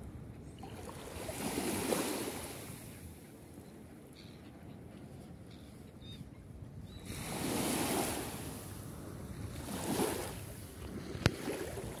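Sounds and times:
small waves washing at shore: 0:00.6 - 0:03.1, 0:07.0 - 0:12.0.

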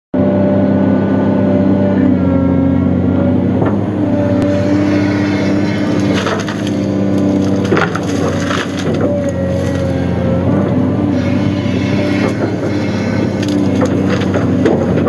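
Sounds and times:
excavator engine and hydraulics: 0:00.2 - 0:15.0
branches cracking and splintering: 0:04.4 - 0:10.0, 0:12.1 - 0:15.0.

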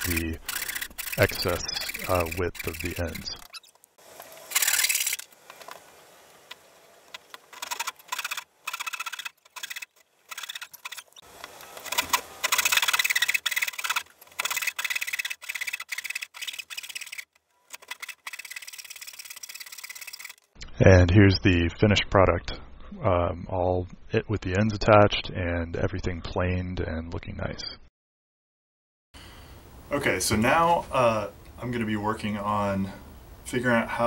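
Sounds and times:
hand saw cutting wood: 0:00.0 - 0:03.2, 0:11.7 - 0:20.4.

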